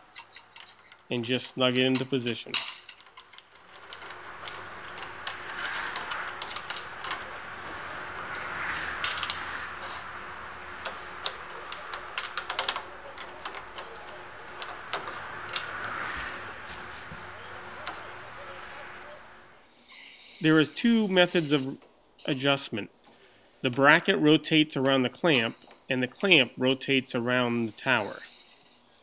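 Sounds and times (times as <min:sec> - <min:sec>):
soft rubbing: 0:03.7 - 0:19.6.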